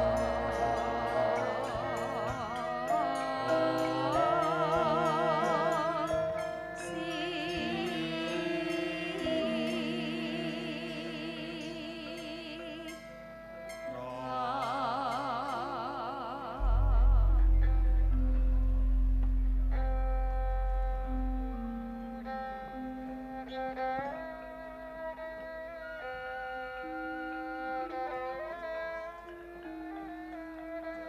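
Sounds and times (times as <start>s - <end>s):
women singing with vibrato: 0.0s - 13.2s, 13.9s - 18.5s
gamelan music: 0.0s - 31.0s.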